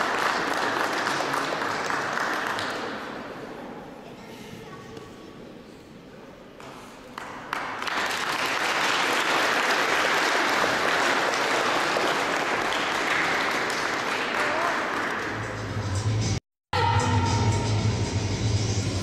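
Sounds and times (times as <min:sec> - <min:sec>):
crowd applause: 0:00.0 - 0:03.2, 0:07.2 - 0:15.4.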